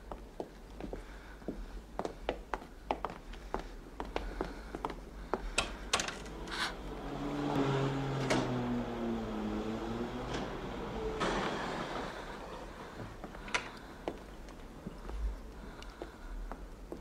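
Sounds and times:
wooden door creaking open: 10.1s - 14.0s.

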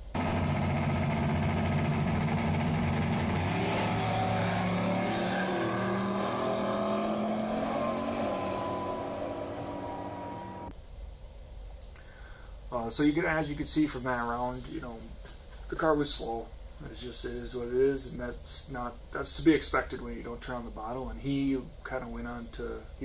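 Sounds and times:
drag car engine at full throttle: 0.0s - 10.7s.

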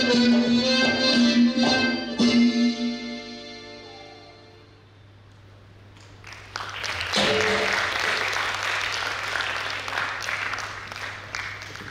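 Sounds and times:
audience applause: 6.0s - 11.9s.

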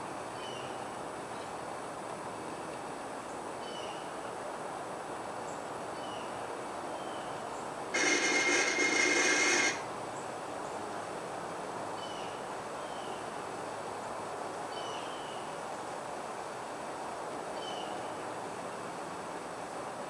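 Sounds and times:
harsh electric buzz: 8.0s - 9.9s.

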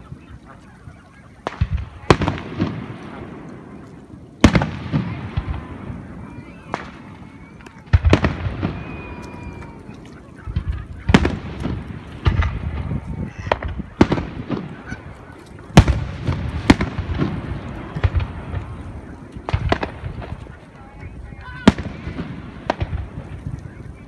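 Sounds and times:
rumbling echo: 0.0s - 24.0s
fireworks booming: 1.4s - 24.0s.

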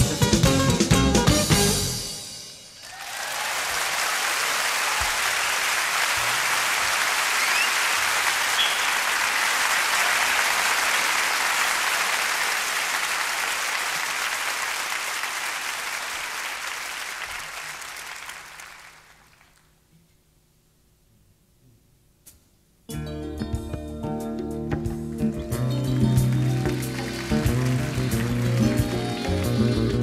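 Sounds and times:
audience applauding: 2.8s - 19.7s, 25.5s - 30.0s.

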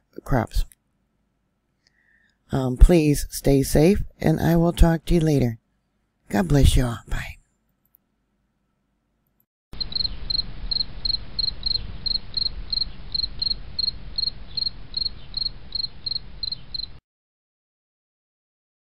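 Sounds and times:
cricket chirping: 9.8s - 17.0s
low rumbling hiss: 9.8s - 17.0s.

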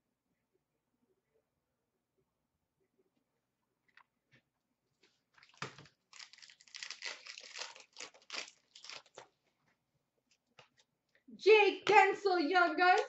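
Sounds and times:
card pack wrapper tearing and crinkling: 5.4s - 9.3s.

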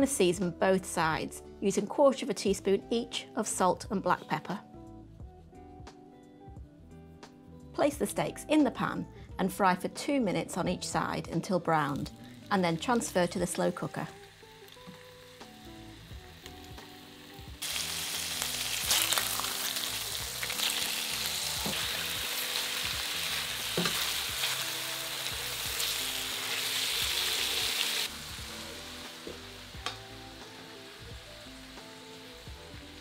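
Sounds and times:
meat sizzling in a frying pan: 11.8s - 33.0s.

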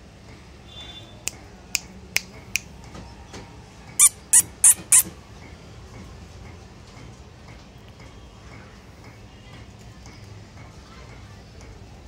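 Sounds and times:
cockatiel chirping: 4.0s - 5.1s.

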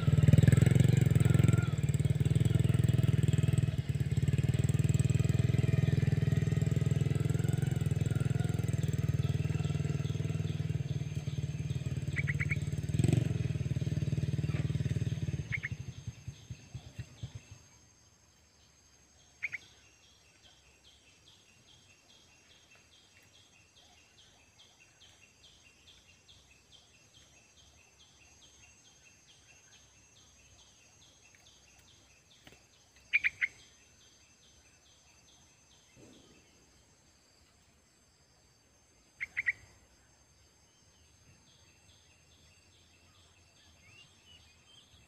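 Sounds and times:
faint rhythmic chirping: 0.0s - 45.0s
bird chirping sharply: 12.1s - 12.7s, 39.2s - 39.7s.

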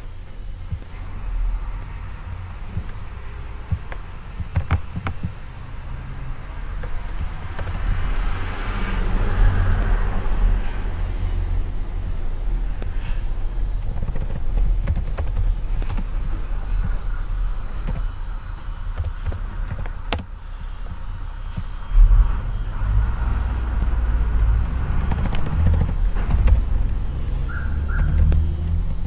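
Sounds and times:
low background rumble: 0.0s - 29.0s
keyboard typing: 7.1s - 8.2s, 13.8s - 16.2s, 17.8s - 18.1s, 18.9s - 20.3s, 23.7s - 29.0s.

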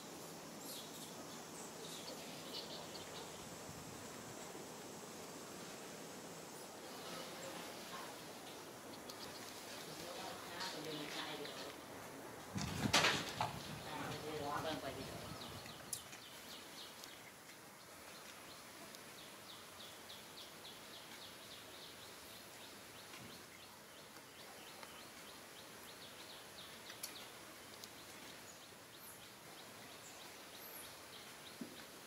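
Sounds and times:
steady low hiss: 0.0s - 32.0s
isolated ticks: 8.9s - 9.6s, 26.8s - 28.0s.

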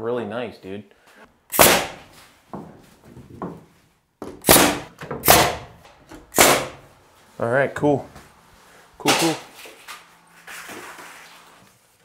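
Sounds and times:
nail gun firing nails into wood: 1.5s - 2.1s, 4.3s - 6.8s.

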